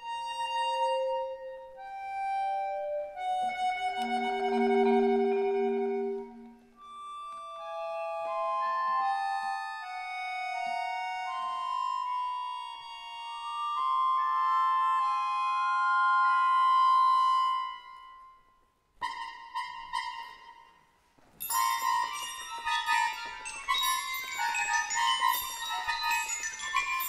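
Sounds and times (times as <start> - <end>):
accordion sustained notes: 0.0 - 18.4, 19.0 - 20.8, 21.4 - 27.0
bright bell-like strikes: 21.4 - 27.0
metal percussion ringing: 21.4 - 27.0.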